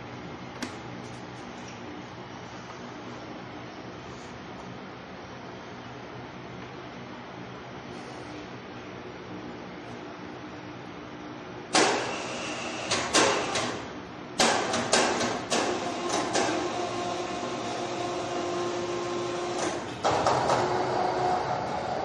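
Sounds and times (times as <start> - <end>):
shop hum: 0.0 - 22.0
hoist motor whine: 11.7 - 13.9, 15.5 - 22.0.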